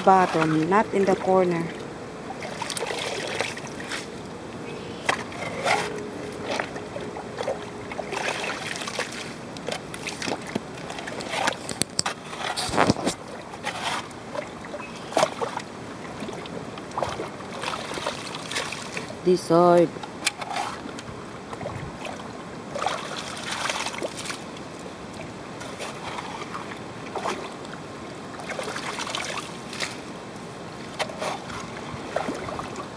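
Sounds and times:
muddy water sloshing: 0:00.0 - 0:32.9
shovel scraping wet soil: 0:08.1 - 0:14.2.

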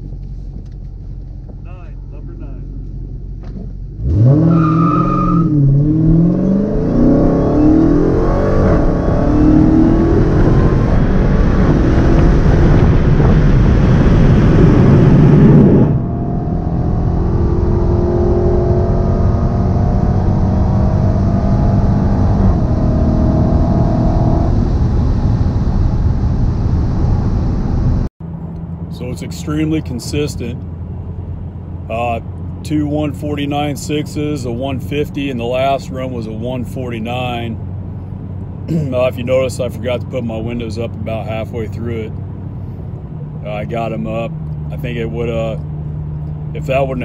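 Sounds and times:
car engine accelerating hard: 0:02.8 - 0:47.0
wind noise: 0:06.9 - 0:16.8.

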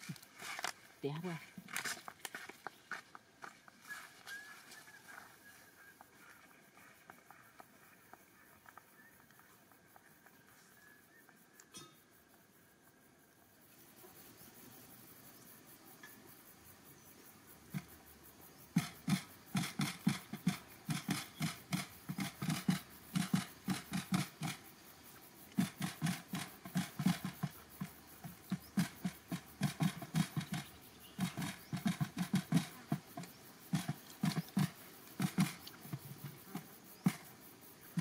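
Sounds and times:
quail pecking grain off cardboard: 0:04.8 - 0:11.2, 0:18.8 - 0:24.7, 0:25.6 - 0:38.0.

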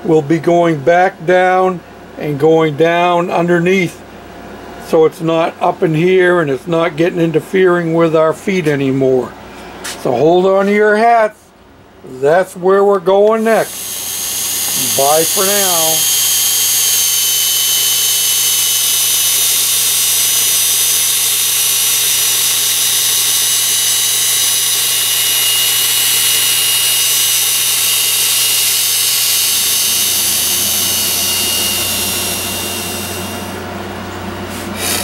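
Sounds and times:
cordless drill whining: 0:13.4 - 0:33.6, 0:34.5 - 0:35.0
low hum: 0:13.6 - 0:35.0.

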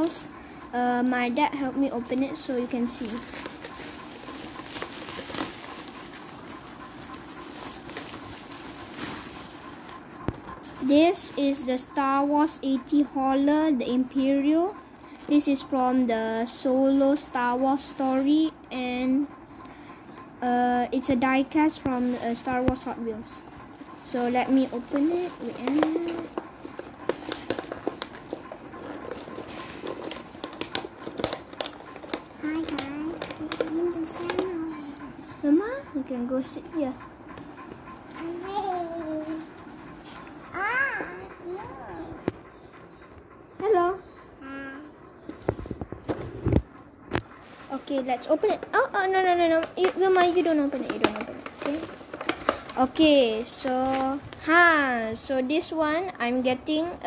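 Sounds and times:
bubble wrap rustling and crinkling: 0:00.0 - 0:11.8, 0:16.5 - 0:18.6, 0:21.6 - 0:34.7, 0:46.1 - 0:54.6.

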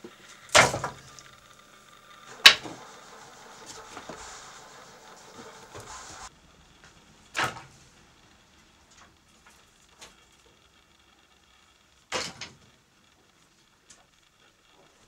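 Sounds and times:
firewood knocking together: 0:02.3 - 0:02.9.

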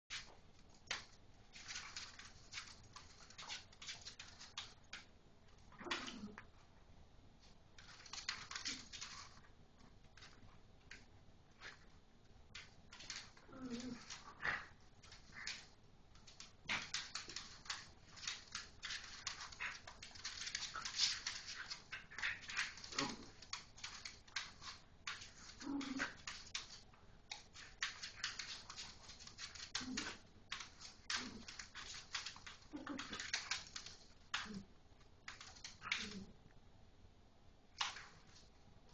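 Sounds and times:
dog claws scrabbling on floor: 0:00.1 - 0:06.4, 0:07.8 - 0:36.3
dogs play growling: 0:05.7 - 0:06.5, 0:13.0 - 0:26.8, 0:27.6 - 0:34.7, 0:35.3 - 0:36.3.

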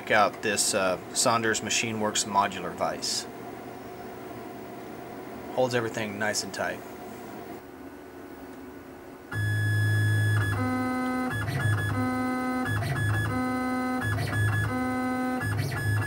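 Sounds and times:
keyboard tune with beat: 0:09.4 - 0:16.0.

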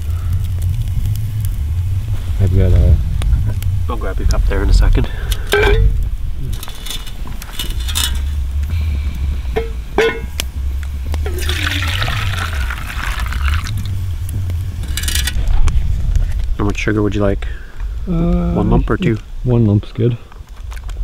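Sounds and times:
pot and cup clinking: 0:09.6 - 0:10.4
tea pouring into a cup: 0:11.3 - 0:13.9.

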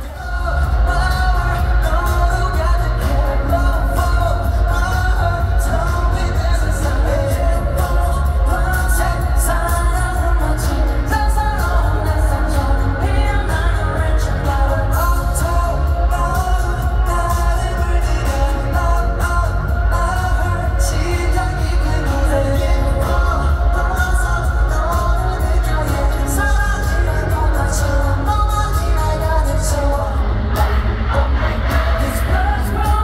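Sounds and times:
boy band singing live pop song: 0:00.0 - 0:33.0
heavy boomy bass: 0:00.0 - 0:33.0.

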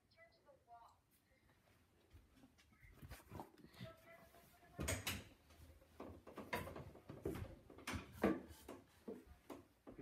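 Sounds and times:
household things knocking: 0:04.8 - 0:10.0.

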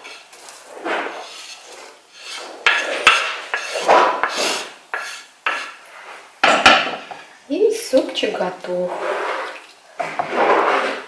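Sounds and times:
wooden spoon scraping board: 0:00.0 - 0:06.2, 0:08.7 - 0:11.0.

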